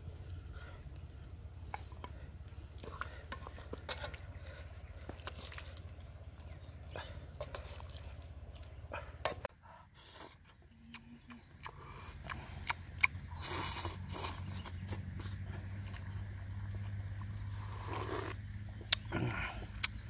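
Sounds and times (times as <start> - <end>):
man chewing food: 0.0 - 20.0
light clicks and scrapes: 0.9 - 6.1.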